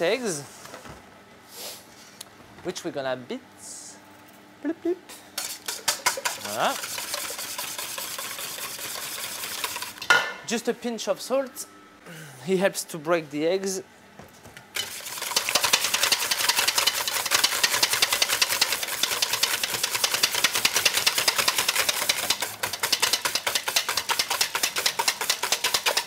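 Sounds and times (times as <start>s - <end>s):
whisk clicking against metal bowl: 5.4s - 10.0s, 14.8s - 26.0s.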